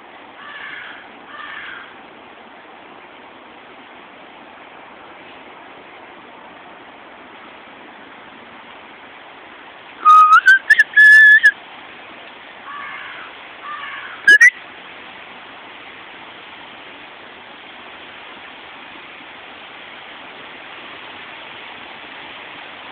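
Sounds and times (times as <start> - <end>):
steady hiss: 0.0 - 22.9
person whistling: 10.0 - 11.5, 14.3 - 14.5.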